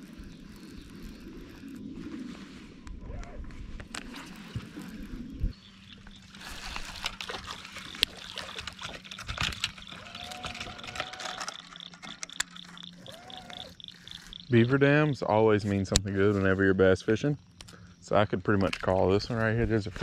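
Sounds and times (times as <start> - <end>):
water trickling and splashing: 3.9 - 14.7.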